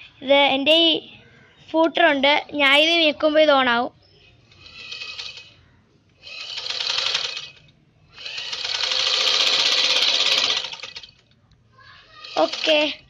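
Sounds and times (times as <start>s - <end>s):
sewing machine clattering: 6.4s - 7.6s, 8.2s - 11.2s, 12.2s - 13.0s.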